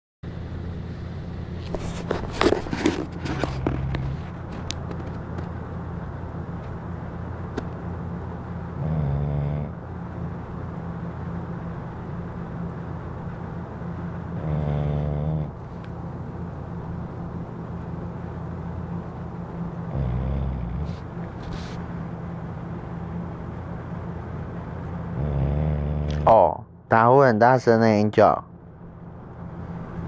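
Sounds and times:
steady low hum: 0:00.2 - 0:30.0
dog snoring: 0:02.8 - 0:04.4, 0:08.7 - 0:09.8, 0:14.3 - 0:15.6, 0:19.8 - 0:21.8, 0:25.0 - 0:26.6.

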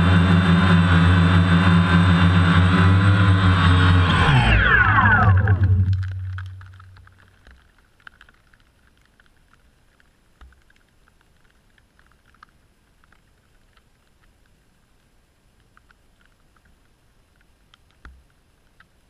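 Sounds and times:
drone motors whining down: 0:00.0 - 0:07.0
faint ticks: 0:05.9 - 0:19.0.

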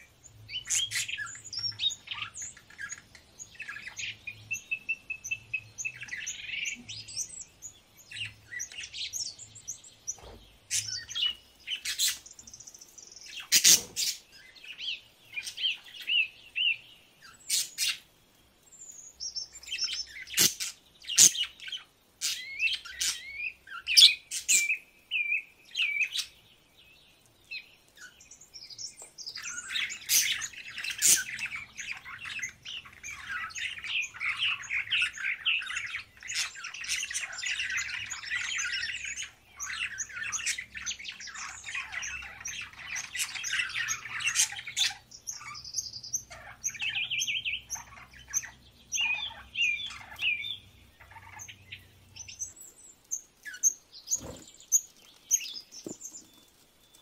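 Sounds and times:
budgerigars chattering and warbling: 0:00.5 - 0:07.4, 0:13.3 - 0:16.3, 0:19.4 - 0:24.8, 0:29.2 - 0:52.6.

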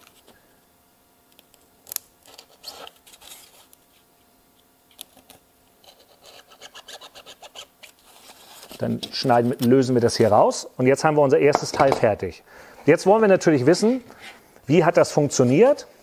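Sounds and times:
blade scraping foam: 0:05.8 - 0:08.9.

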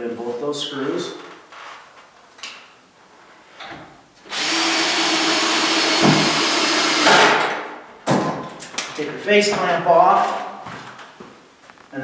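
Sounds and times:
cordless drill driving screw: 0:04.3 - 0:07.1.

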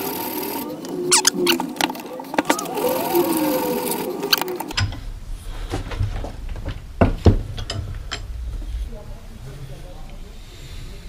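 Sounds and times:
metal clinks and knocks: 0:04.7 - 0:05.1, 0:06.1 - 0:08.4.

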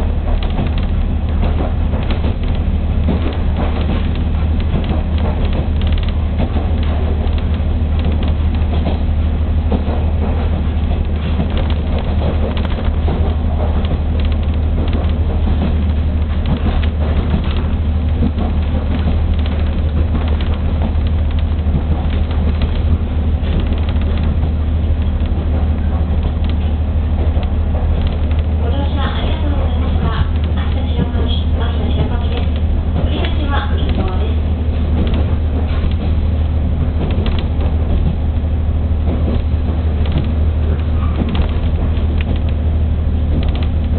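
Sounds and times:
diesel train engine and wheels rumbling: 0:00.0 - 0:43.9
faint clatter: 0:00.0 - 0:43.9.

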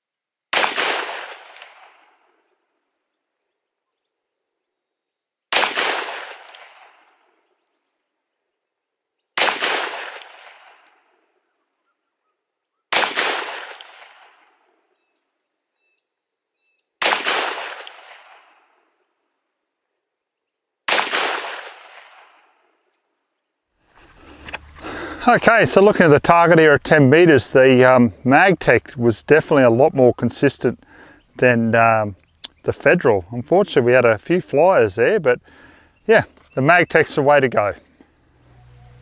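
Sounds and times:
revolver shots: 0:00.6 - 0:02.0, 0:09.4 - 0:10.8.

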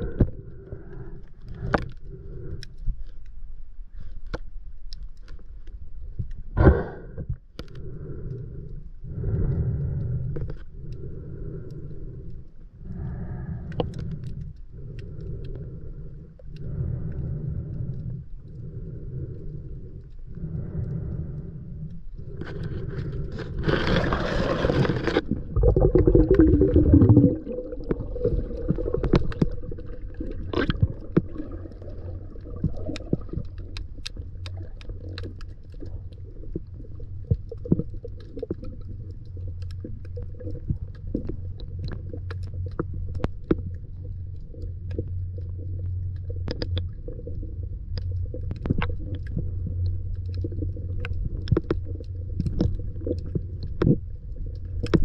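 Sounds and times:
muffled underwater rumble: 0:00.0 - 0:55.0
sharp underwater clicks: 0:09.3 - 0:23.3, 0:25.3 - 0:55.0.

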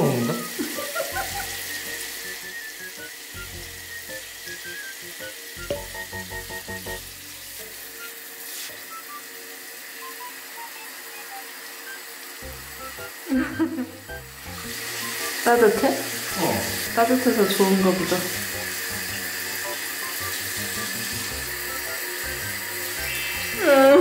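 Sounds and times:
light plucked background music: 0:00.0 - 0:09.2, 0:10.0 - 0:24.0
shower spraying water on tiles: 0:00.0 - 0:24.0.

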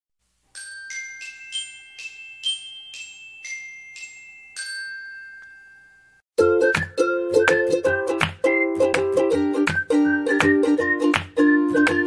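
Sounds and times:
bell-like glockenspiel jingle: 0:00.5 - 0:06.3
ukulele music: 0:06.4 - 0:12.0.

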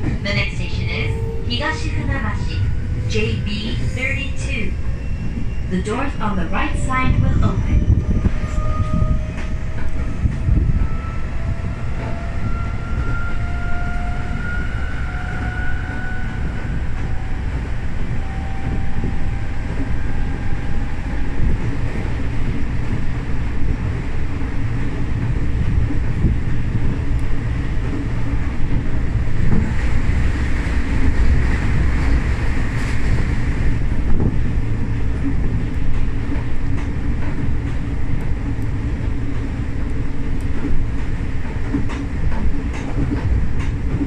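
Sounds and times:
train running gear rumble: 0:00.0 - 0:44.0.

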